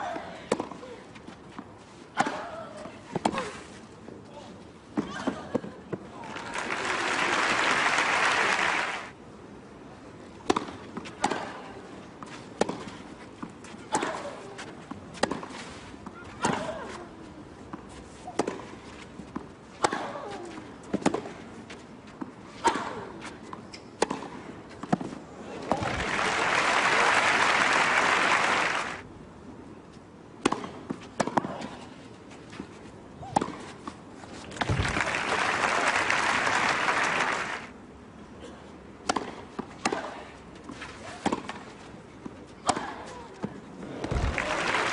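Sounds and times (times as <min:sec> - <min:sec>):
crowd applause: 0:06.2 - 0:09.1, 0:25.8 - 0:29.0, 0:34.6 - 0:37.7, 0:44.1 - 0:44.9
tennis ball strikes off rackets: 0:10.4 - 0:11.6, 0:12.6 - 0:14.2, 0:15.1 - 0:15.5, 0:24.0 - 0:25.1, 0:30.4 - 0:31.6, 0:33.2 - 0:33.6, 0:39.0 - 0:40.2, 0:42.6 - 0:43.1, 0:43.9 - 0:44.9
racquet striking tennis ball: 0:44.0 - 0:44.9.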